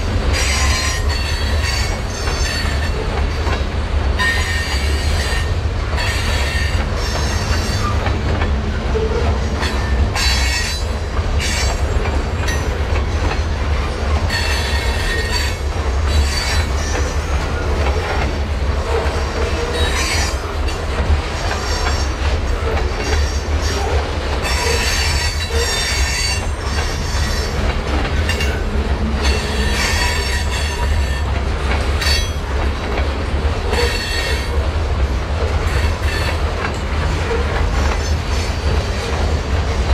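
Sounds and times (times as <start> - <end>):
freight train rumble: 0.0 - 39.9
train wheels squealing: 0.3 - 3.6, 4.2 - 8.1, 8.7 - 13.6, 14.3 - 28.6, 29.2 - 31.4, 32.0 - 32.6, 33.7 - 34.6, 35.7 - 36.4.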